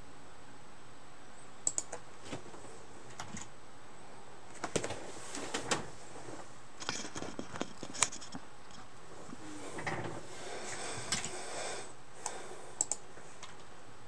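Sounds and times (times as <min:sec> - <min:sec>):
objects handled at a desk: 0:04.5 - 0:11.4.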